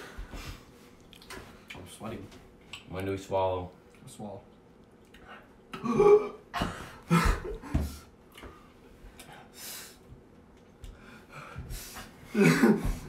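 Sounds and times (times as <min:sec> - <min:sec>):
man's throat sounds: 0:05.7 - 0:06.4, 0:12.3 - 0:13.0.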